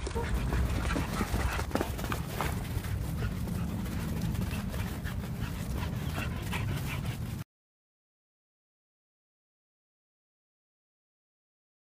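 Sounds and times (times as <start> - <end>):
dogs playing: 0.0 - 7.4.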